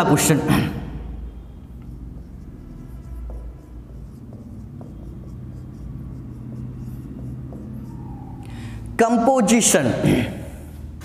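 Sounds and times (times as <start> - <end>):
steady low hum: 0.0 - 9.0
marker scratching on whiteboard: 1.3 - 8.9.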